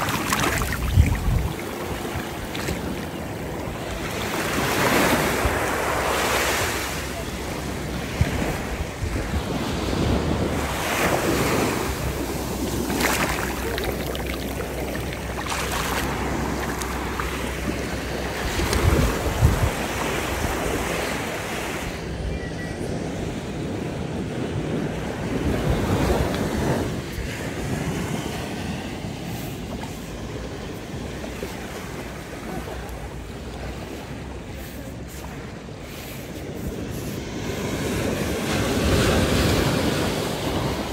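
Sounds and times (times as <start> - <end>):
wind buffeting microphone: 0.0 - 6.0, 7.4 - 21.4
waves washing over sand: 0.0 - 22.2, 22.9 - 40.9.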